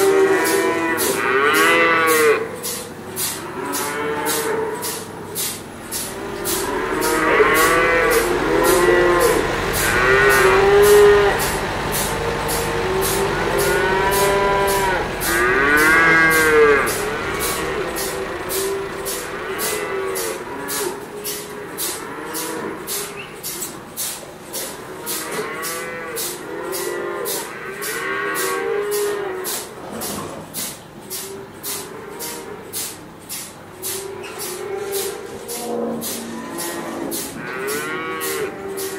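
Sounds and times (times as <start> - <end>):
cows mooing: 0.0 - 5.3, 5.9 - 23.6, 24.6 - 30.1, 31.2 - 32.8, 33.8 - 38.9
milking machines hissing pulse: 0.0 - 38.9
hissing pulse: 6.0 - 20.8.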